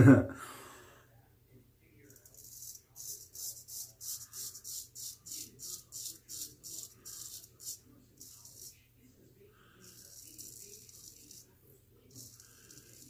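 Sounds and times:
razor scraping stubble: 2.1 - 8.8, 9.6 - 11.5, 12.1 - 13.0.

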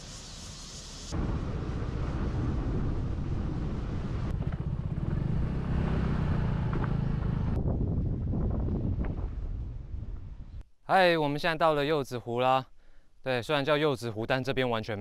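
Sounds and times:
vehicle engine and road noise: 0.0 - 7.9
wind on microphone: 1.1 - 10.6.

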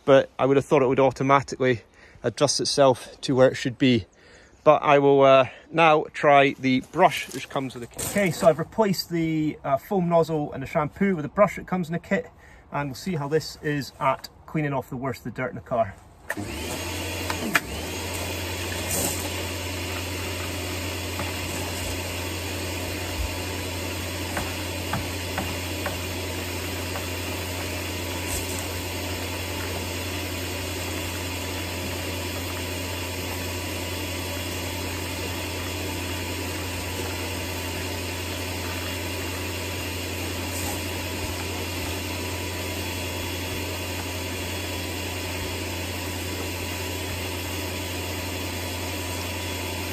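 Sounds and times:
pressure washer humming: 6.9 - 8.8, 16.3 - 49.9
water spraying: 17.4 - 47.5.

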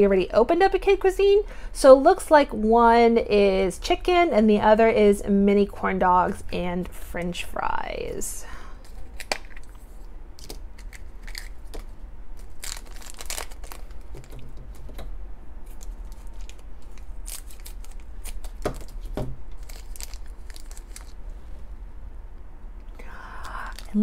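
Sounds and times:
foil wrapper crackling: 10.4 - 15.0, 15.6 - 21.2, 23.4 - 24.0.

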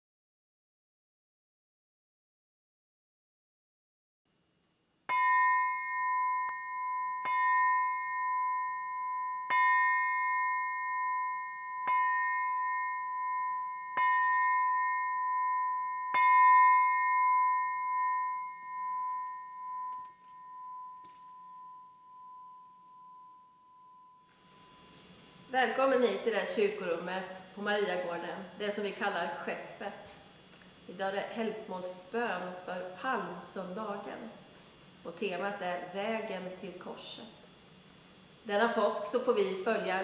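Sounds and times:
brass bell struck with mallet: 5.1 - 24.8.

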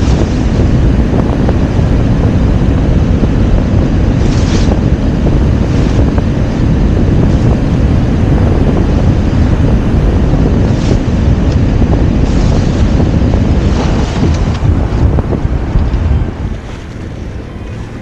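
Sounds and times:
water rushing along boat hull: 0.0 - 18.0
wind buffeting microphone: 0.0 - 18.0.

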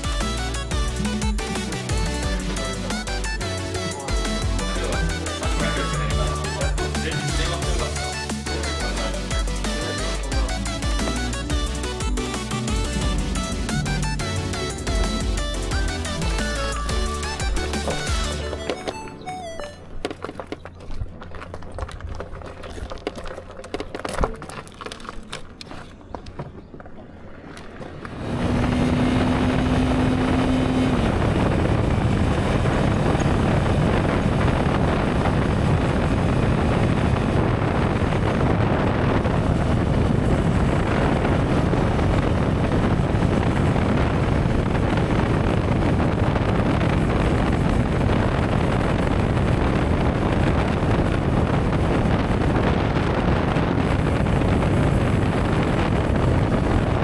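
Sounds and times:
wind noise on microphone: 0.0 - 6.2, 28.0 - 57.0
motorcycle engine: 26.0 - 57.0.

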